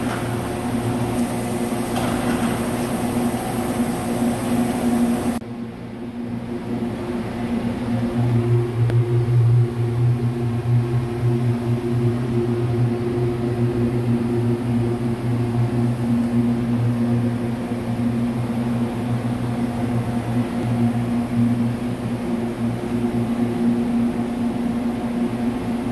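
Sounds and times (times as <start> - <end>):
workshop machinery humming: 0.0 - 25.9.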